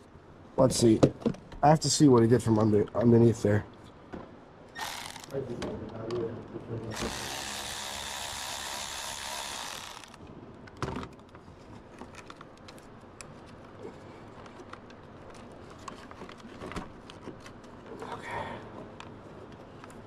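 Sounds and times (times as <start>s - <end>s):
small power tool running: 4.8s - 5.4s, 6.9s - 10.2s.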